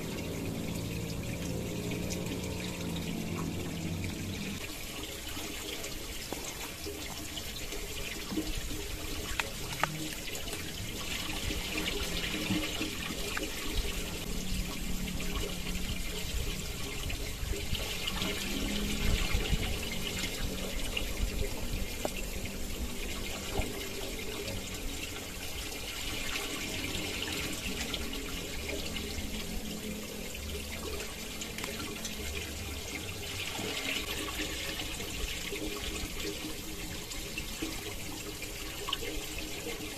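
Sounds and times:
stream water running: 0:00.0 - 0:39.9.

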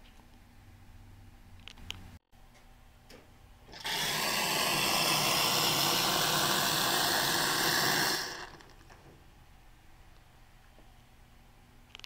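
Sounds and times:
steam wand hissing: 0:03.8 - 0:08.6.

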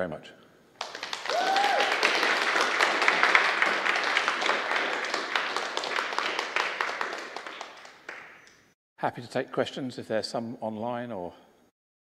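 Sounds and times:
audience applauding: 0:00.8 - 0:08.6.

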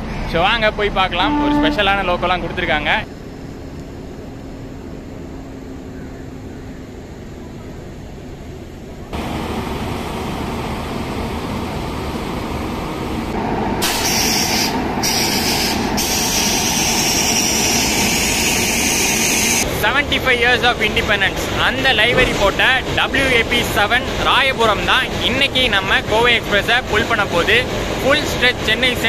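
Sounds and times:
locomotive machinery hum: 0:00.0 - 0:29.0
loud steady hiss: 0:06.9 - 0:29.0.

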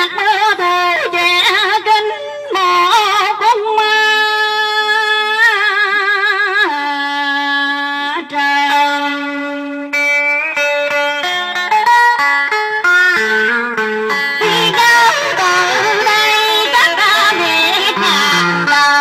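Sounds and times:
amplified backing music: 0:10.0 - 0:19.0
woman singing with vibrato: 0:14.4 - 0:19.0.

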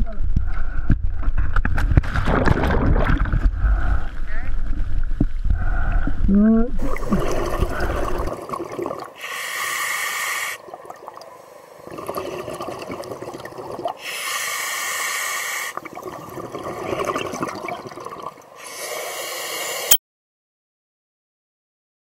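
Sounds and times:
bubbling exhale: 0:05.5 - 0:11.0, 0:11.8 - 0:19.9
regulator hissing inhale: 0:09.2 - 0:10.7, 0:14.0 - 0:15.8, 0:18.6 - 0:19.9.

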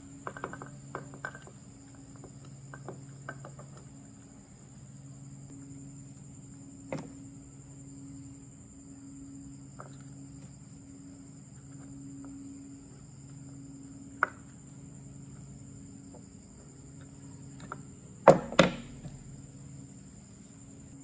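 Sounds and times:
low hum: 0:00.0 - 0:21.0
steady high whine: 0:00.0 - 0:21.0
sharp knocks: 0:18.2 - 0:19.4.

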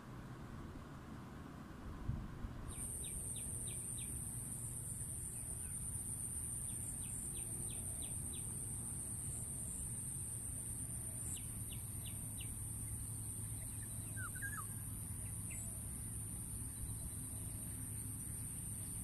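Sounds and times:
bird chirping: 0:13.3 - 0:15.8.

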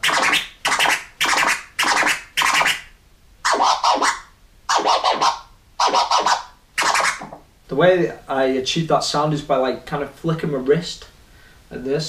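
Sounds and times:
turntable scratching: 0:00.0 - 0:07.4.

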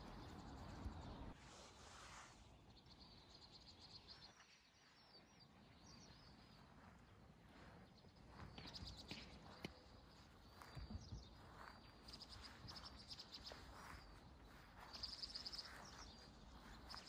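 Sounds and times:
soft rush of noise: 0:00.0 - 0:02.8
faint high bird chirps: 0:02.2 - 0:17.0.

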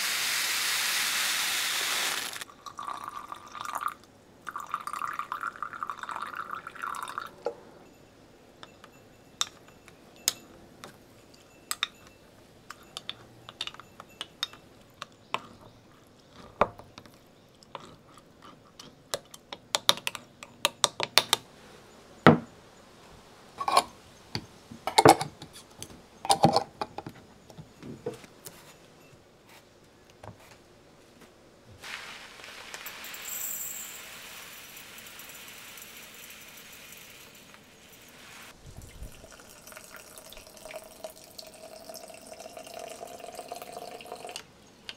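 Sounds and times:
dry grains pouring into glass jar: 0:01.4 - 0:03.9, 0:31.8 - 0:44.4
water pouring into glass jar: 0:02.2 - 0:07.4, 0:31.9 - 0:44.4
glass clicks and clinks: 0:07.0 - 0:15.8, 0:32.9 - 0:38.2.

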